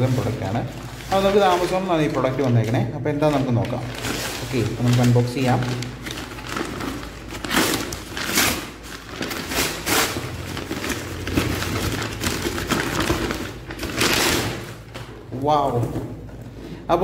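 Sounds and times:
paper envelope tearing and crinkling: 0.0 - 15.1.

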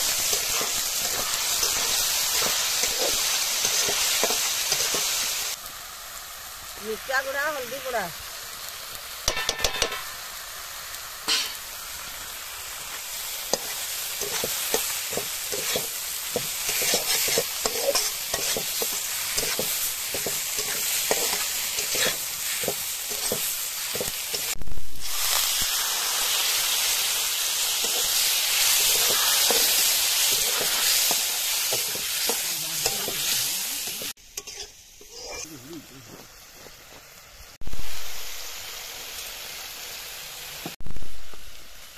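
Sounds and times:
onions sizzling in a pan: 0.0 - 41.9
metal spatula scraping pan: 13.6 - 24.5, 27.8 - 35.5.

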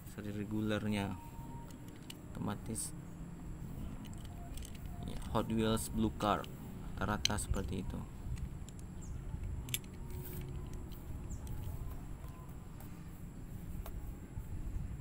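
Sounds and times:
low rumbling background noise: 0.0 - 15.0.

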